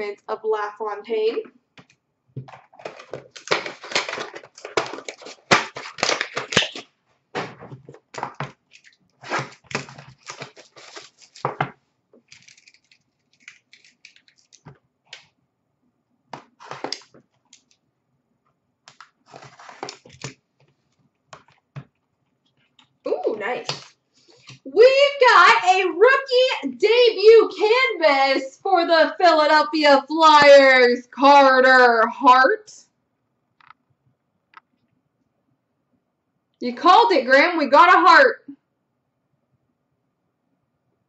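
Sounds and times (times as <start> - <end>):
plastic shrink wrap crinkling and tearing: 2.6 - 6.9, 8.1 - 15.3, 18.9 - 20.4.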